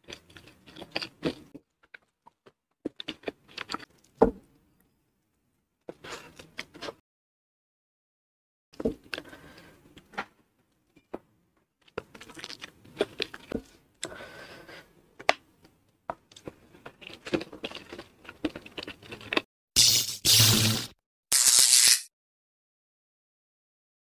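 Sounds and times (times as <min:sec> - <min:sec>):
fingers gathering crispy food: 0:21.3 - 0:22.1.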